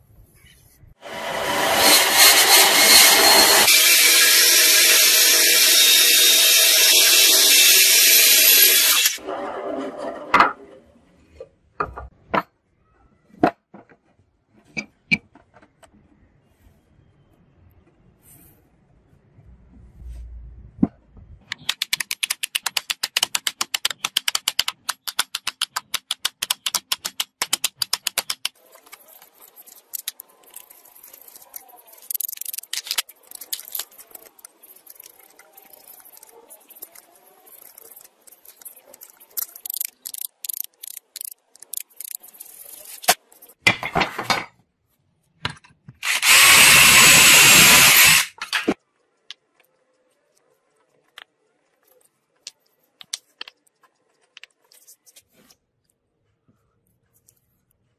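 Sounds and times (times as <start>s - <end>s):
electric drill boring through wood: 1.0s - 9.2s, 46.0s - 48.7s.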